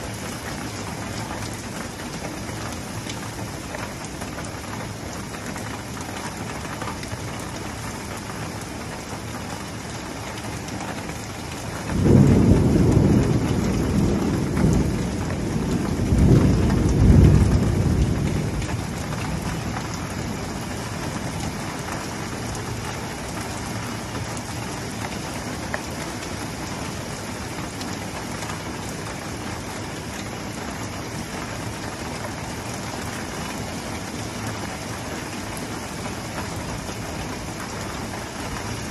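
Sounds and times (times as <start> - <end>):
steady rain on pavement: 0.0 - 38.9
thunder rumbling: 11.9 - 21.4.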